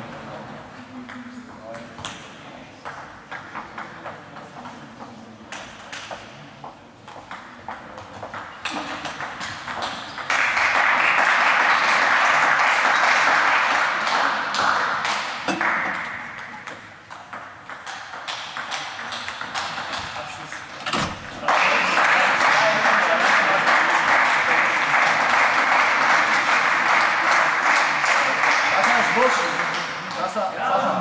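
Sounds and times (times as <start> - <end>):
table tennis balls clicking: 7.0 - 10.5, 15.9 - 20.7.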